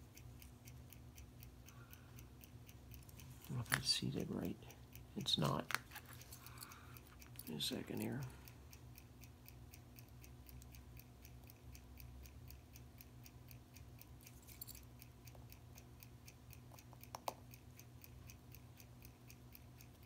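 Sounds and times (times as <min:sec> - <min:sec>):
mechanical watch ticking: 0:00.0 - 0:20.0
metal tools clicking: 0:14.3 - 0:14.8.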